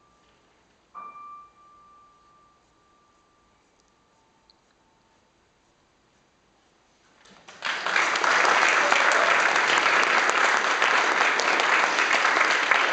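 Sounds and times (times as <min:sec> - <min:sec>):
audience applause: 0:07.4 - 0:12.9.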